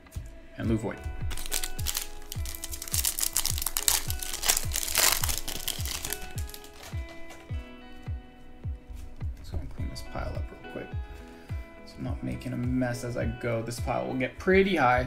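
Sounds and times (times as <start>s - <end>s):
background music with steady beat: 0.0s - 15.0s
plastic wrapper crinkling: 1.3s - 7.4s.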